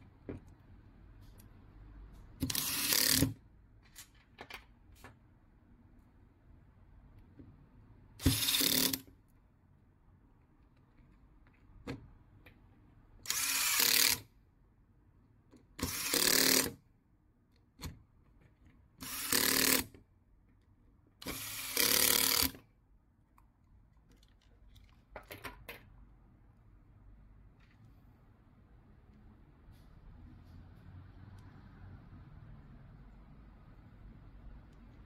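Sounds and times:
power drill driving screws: 2.4s - 3.4s, 8.2s - 9.0s, 13.2s - 14.2s, 15.8s - 16.8s, 19.0s - 19.9s, 21.2s - 22.6s.

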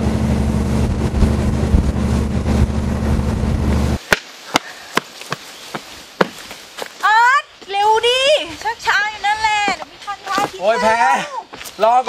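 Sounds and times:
low hum: 0.0s - 4.0s
footsteps on concrete steps: 4.1s - 12.0s.

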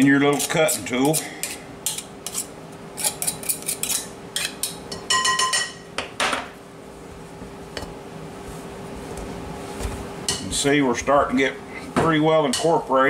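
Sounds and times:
pastry blender clinking and scraping: 0.2s - 5.8s.

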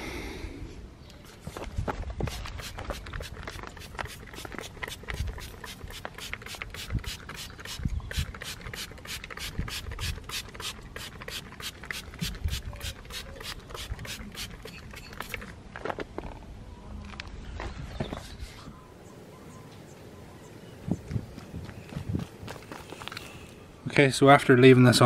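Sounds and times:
spray bottle hissing spritzes: 2.3s - 15.4s.

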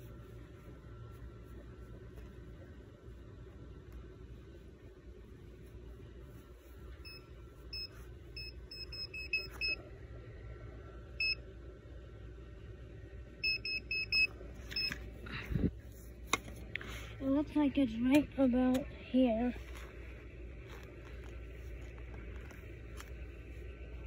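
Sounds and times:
metal detector beeping: 7.0s - 9.8s, 13.4s - 15.0s.

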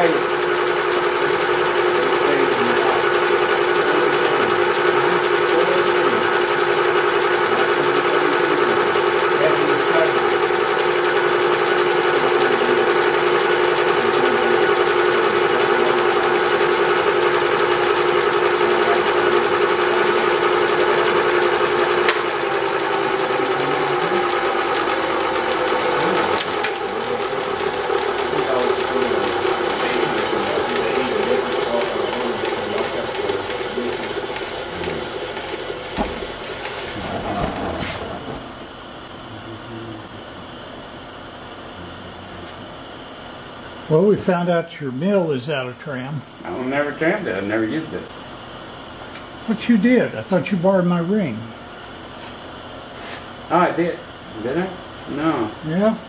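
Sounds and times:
milling machine cutting metal: 0.0s - 39.0s.

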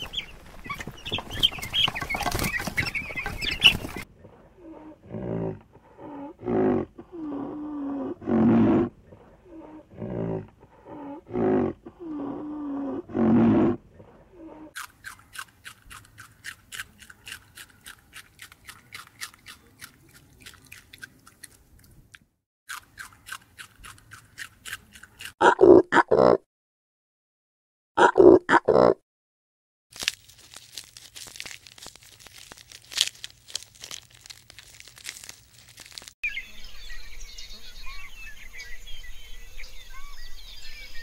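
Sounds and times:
rabbits chewing: 14.8s - 22.0s, 22.7s - 25.4s, 30.0s - 36.2s.

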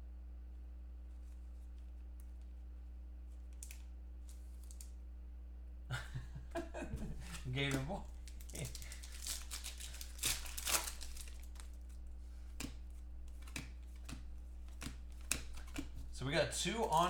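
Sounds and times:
steady low hum: 0.0s - 17.0s
cards rustling and clicking: 3.3s - 5.0s, 6.9s - 17.0s
foil wrappers crinkling: 3.3s - 5.0s, 7.0s - 17.0s.

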